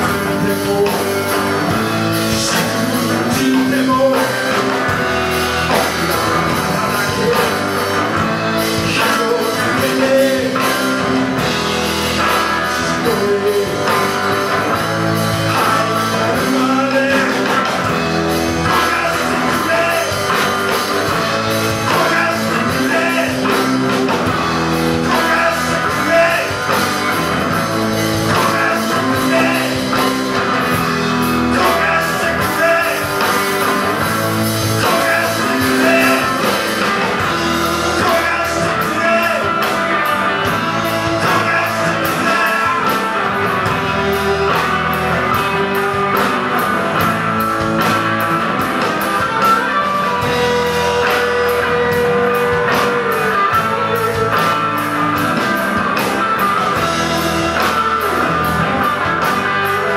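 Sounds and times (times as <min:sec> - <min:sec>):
man singing: 0:00.0 - 0:46.2
live rock band playing: 0:00.0 - 0:59.9.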